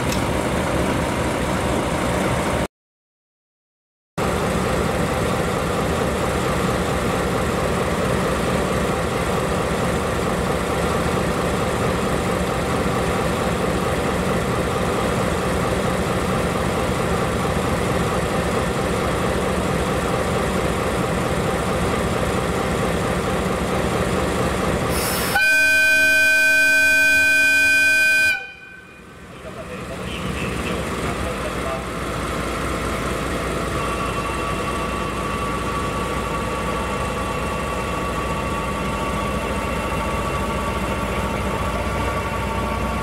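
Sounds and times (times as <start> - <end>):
diesel locomotive engine running: 0.0 - 2.7, 4.2 - 43.0
locomotive horn blast: 24.9 - 29.1.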